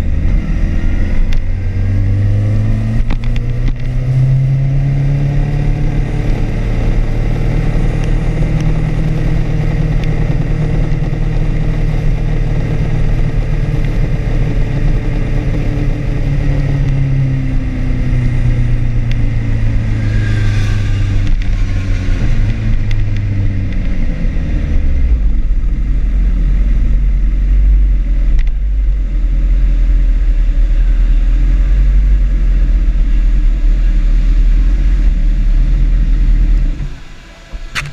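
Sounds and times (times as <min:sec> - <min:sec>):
motorbike engine at low revs: 0:00.0 - 0:37.9.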